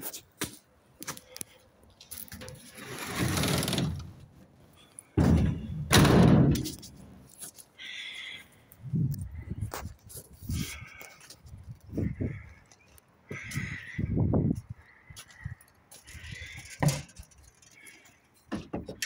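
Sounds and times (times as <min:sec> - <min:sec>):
metal roller shutter rattling: 0:02.3 - 0:04.2
loud bumps: 0:05.2 - 0:07.0.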